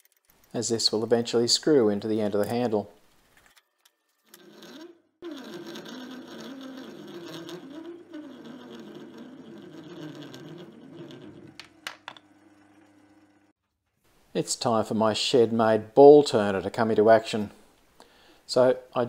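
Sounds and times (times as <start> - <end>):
metal lathe running: 4.3 - 13.5.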